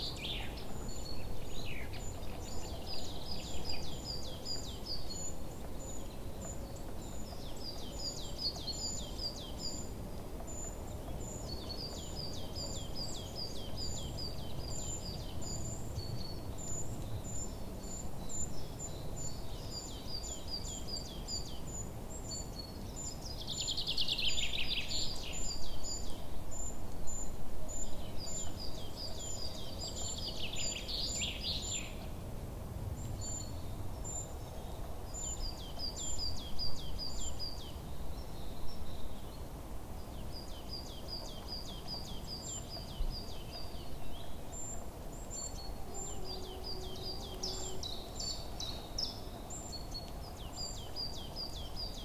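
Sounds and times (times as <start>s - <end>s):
steady background hiss: 0.0s - 52.0s
birds chirping: 33.0s - 52.0s.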